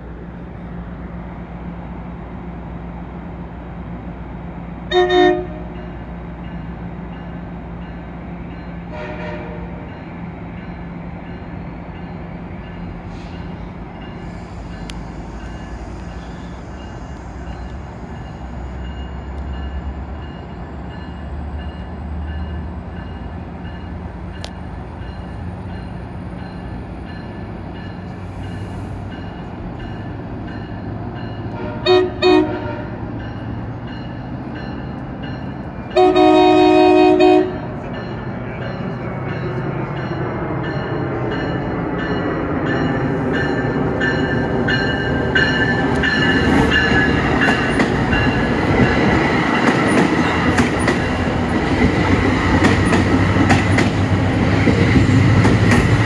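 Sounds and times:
diesel locomotive running: 0.0s - 56.0s
locomotive air horn blasts: 4.9s - 5.8s, 8.9s - 9.8s, 31.5s - 33.0s, 36.0s - 37.6s.

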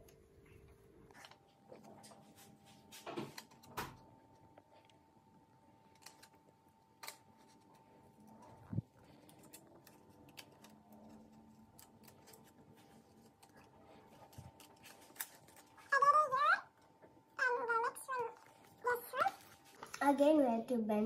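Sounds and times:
scissors snipping paper: 5.9s - 16.0s.

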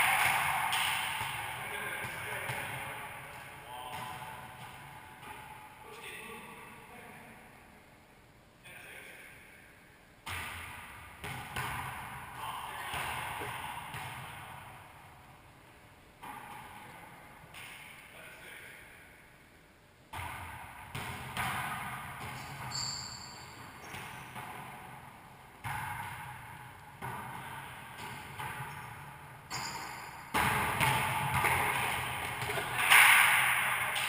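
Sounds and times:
ball slapping and echoing off walls: 0.0s - 7.6s, 9.3s - 34.0s
sneakers squeaking on hardwood floor: 22.2s - 24.5s, 28.1s - 30.2s.

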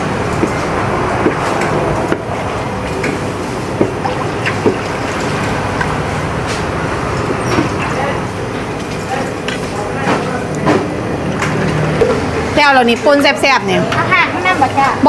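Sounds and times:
wooden pestle pounding in metal bowl: 0.0s - 2.4s
steady background noise: 0.0s - 15.0s.

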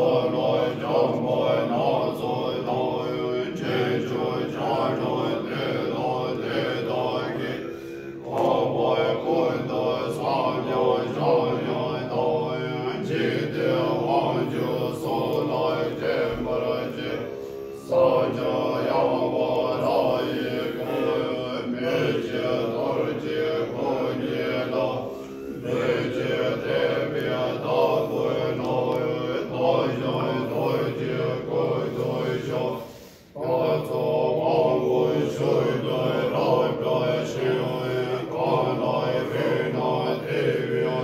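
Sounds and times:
monks chanting in low voices: 0.0s - 41.0s.

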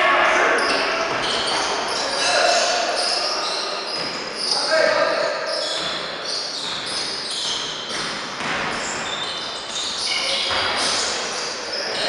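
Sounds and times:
sneakers squeaking on court: 0.5s - 12.0s
basketball bouncing: 5.7s - 11.1s.

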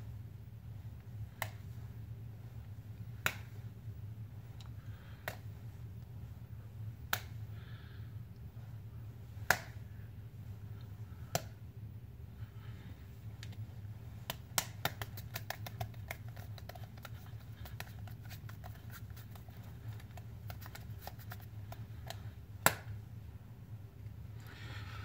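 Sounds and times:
steady low hum: 0.0s - 25.0s
sharp snaps: 1.3s - 1.8s, 3.0s - 3.6s, 4.6s - 5.5s, 7.0s - 7.6s, 9.4s - 9.9s, 10.8s - 11.6s, 14.2s - 23.0s.

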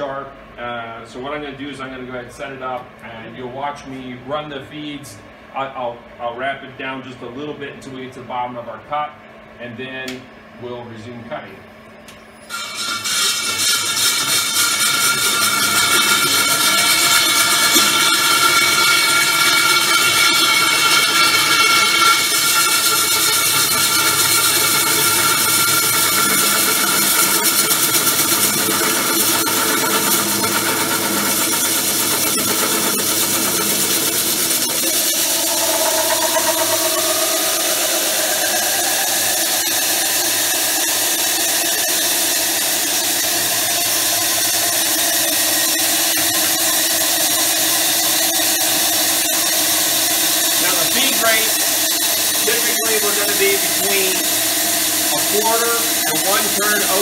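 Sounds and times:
high squealing tone: 12.3s - 57.0s
core drill grinding stone: 12.5s - 57.0s.

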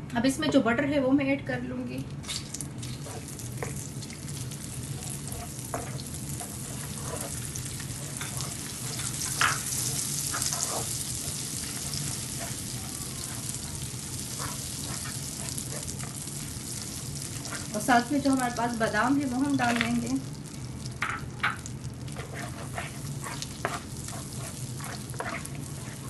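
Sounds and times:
butter sizzling in sugar: 2.5s - 26.0s
wooden spoon scraping pan: 5.0s - 18.6s, 21.0s - 26.0s.

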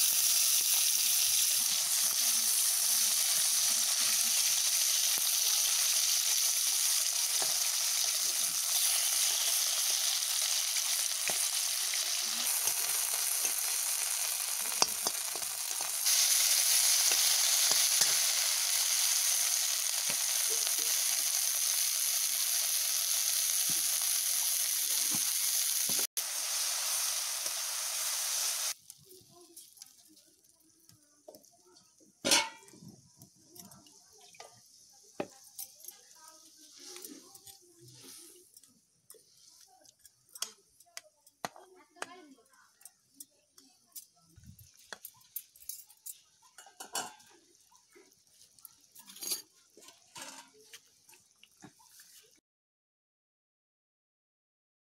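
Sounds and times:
paste sizzling in a pan: 0.0s - 40.3s
curry boiling with pops and crackles: 0.0s - 52.4s
metal ladle clinking on pan: 32.3s - 32.7s.

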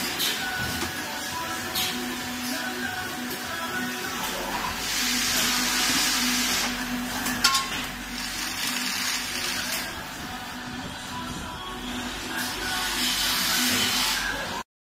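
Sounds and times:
hiss: 4.8s - 6.8s, 12.4s - 14.4s
tool block clack: 7.3s - 7.9s.

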